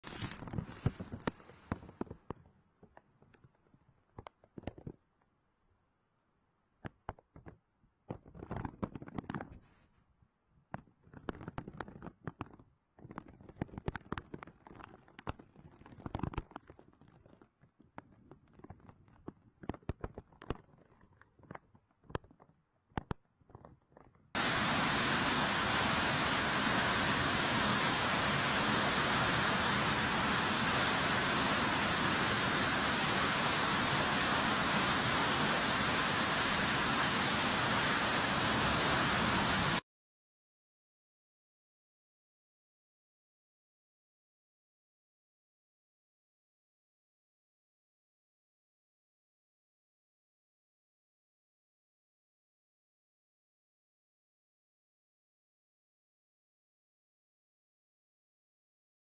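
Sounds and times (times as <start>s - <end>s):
crackles: 0.0s - 5.3s, 6.8s - 39.8s
floodwater gushing: 24.4s - 39.8s.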